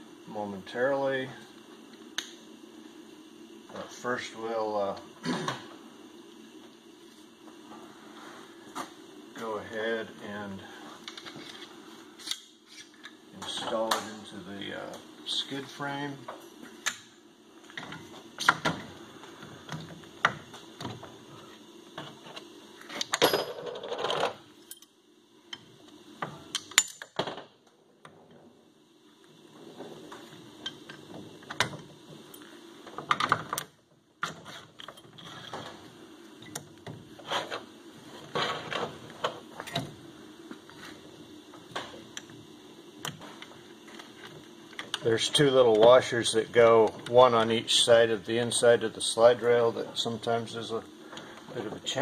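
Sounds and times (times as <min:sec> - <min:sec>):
faint steady hum: 0:00.0 - 0:52.0.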